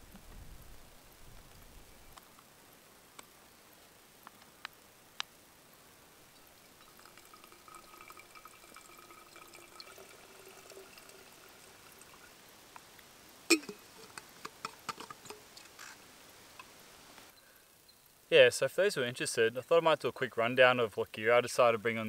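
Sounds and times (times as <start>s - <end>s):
water running into metal bottle: 6.4s - 12.4s, 13.5s - 16.0s
light clicks of bottle handling: 13.5s - 15.9s.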